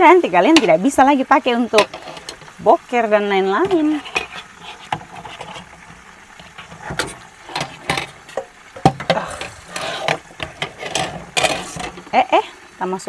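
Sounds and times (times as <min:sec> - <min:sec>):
chicken frying in oil: 0:00.0 - 0:13.0
water splashing: 0:00.0 - 0:13.0
dishes clattering in sink: 0:03.6 - 0:12.2.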